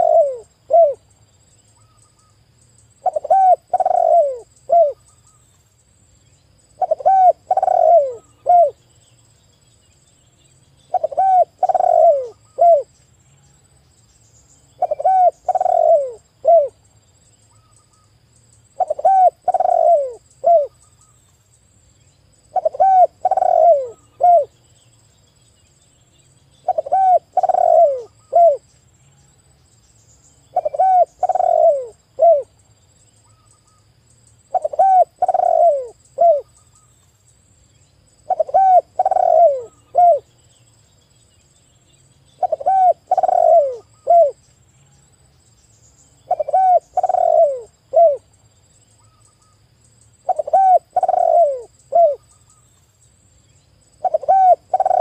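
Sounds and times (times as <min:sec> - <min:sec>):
dove cooing: 0:00.0 - 0:01.0, 0:03.0 - 0:05.0, 0:06.8 - 0:08.8, 0:10.9 - 0:12.9, 0:14.8 - 0:16.8, 0:18.8 - 0:20.8, 0:22.5 - 0:24.6, 0:26.6 - 0:28.7, 0:30.5 - 0:32.5, 0:34.5 - 0:36.5, 0:38.2 - 0:40.3, 0:42.4 - 0:44.4, 0:46.3 - 0:48.3, 0:50.2 - 0:52.2, 0:54.0 - 0:55.0.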